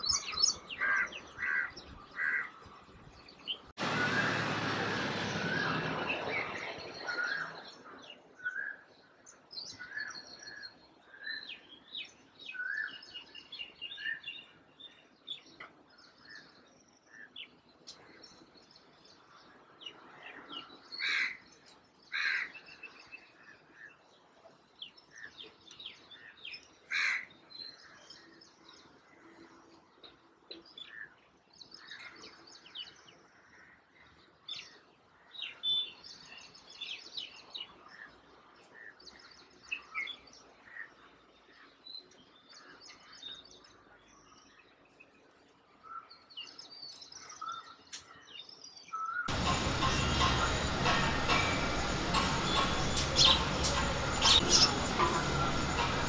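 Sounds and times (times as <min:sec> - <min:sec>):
small birds chirping: 0:27.6 - 0:56.0
harsh bird calls: 0:49.0 - 0:56.0.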